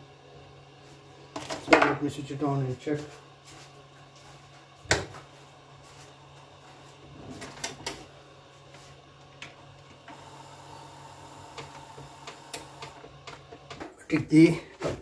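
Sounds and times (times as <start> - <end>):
steady low hum: 0.0 - 15.0
disc carousel clicking and whirring: 7.1 - 14.4.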